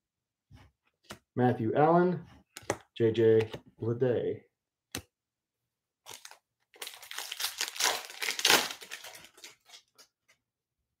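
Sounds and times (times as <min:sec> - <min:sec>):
foil wrapper crinkling: 0:06.1 - 0:10.0.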